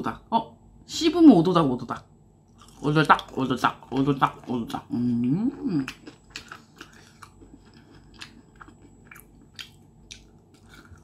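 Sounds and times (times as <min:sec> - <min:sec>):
chewing crunchy fried chicken: 0:02.5 - 0:11.0.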